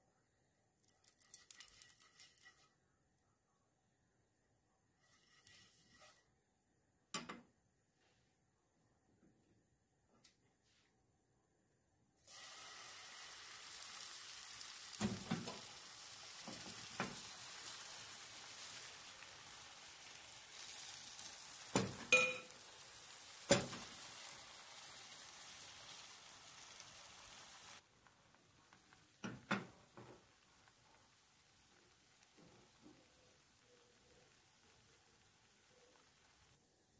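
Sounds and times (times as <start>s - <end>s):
batter sizzling in frying pan: 1.0s - 2.6s, 12.2s - 36.6s.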